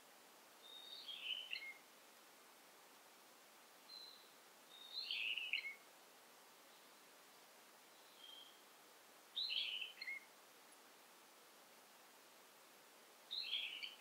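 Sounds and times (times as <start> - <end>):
faint forest hiss: 0.0 - 14.0
songbird singing: 0.5 - 1.9, 3.7 - 10.4, 13.2 - 14.0.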